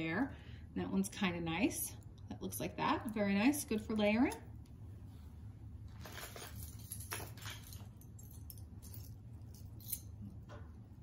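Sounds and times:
low steady hum: 0.0 - 11.0
metal jewelry clinking: 5.9 - 10.5.

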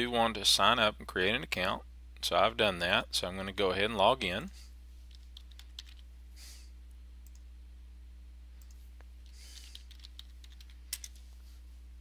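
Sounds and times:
low electrical hum: 0.0 - 12.0
computer keys and mouse clicking: 5.1 - 6.1, 9.4 - 11.2.

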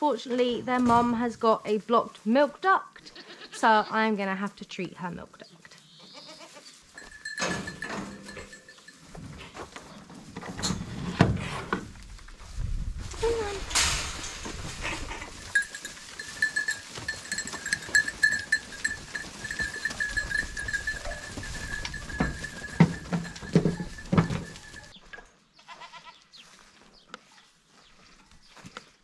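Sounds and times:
goats bleating: 3.0 - 4.0, 5.8 - 6.8, 25.6 - 26.2.

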